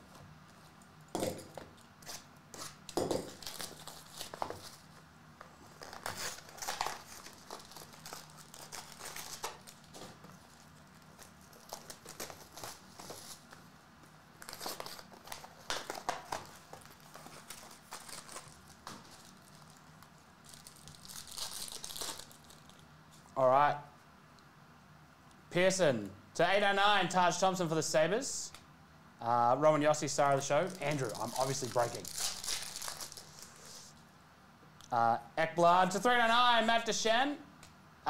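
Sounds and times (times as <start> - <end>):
foil wrappers crinkling and tearing: 3.3 - 5.0, 5.7 - 13.6, 14.4 - 23.3, 30.3 - 33.9.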